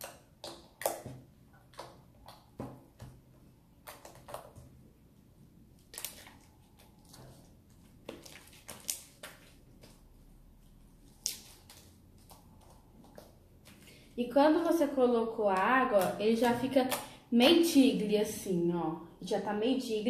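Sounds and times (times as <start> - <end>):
slime squelching: 0.0 - 14.1.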